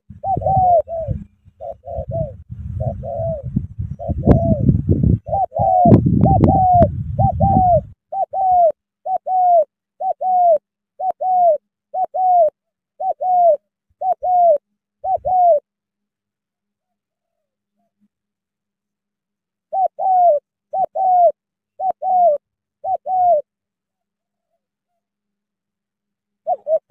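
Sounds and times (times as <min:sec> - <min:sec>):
dove cooing: 0:00.0 - 0:15.7, 0:19.7 - 0:23.6, 0:26.4 - 0:26.9.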